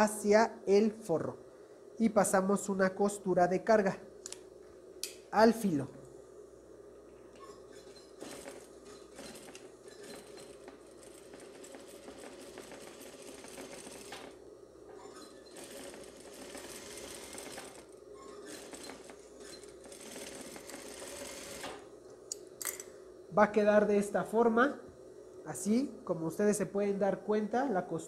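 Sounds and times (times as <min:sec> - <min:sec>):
sewing machine running: 0:07.7 - 0:14.4, 0:15.3 - 0:21.9.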